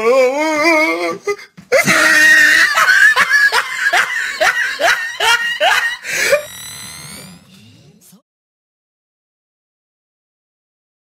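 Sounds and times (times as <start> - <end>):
person laughing loudly: 1.7 - 6.5.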